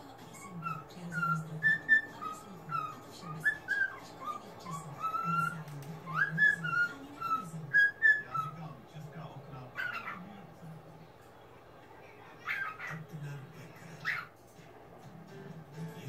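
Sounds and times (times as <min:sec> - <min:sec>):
cockatiel whistling warble: 0:00.4 - 0:08.6.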